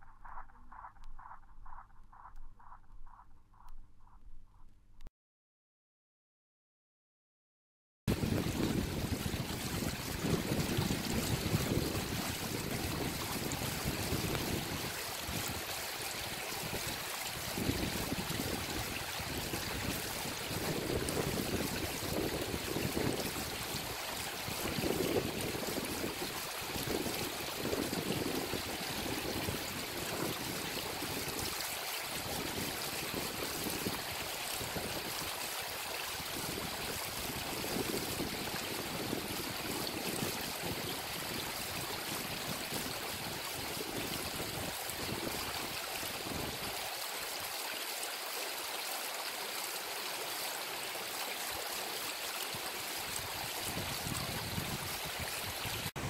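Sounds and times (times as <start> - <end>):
wind rumble on microphone: 8.1 - 46.8, 53.0 - 56.0
mountain stream rushing: 8.1 - 56.0.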